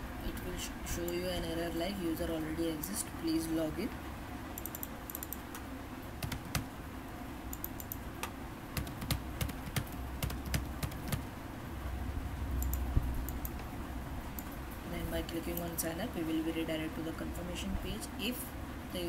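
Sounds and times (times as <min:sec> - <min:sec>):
keyboard typing: 0:04.6 - 0:05.5, 0:06.2 - 0:06.7, 0:07.5 - 0:11.3.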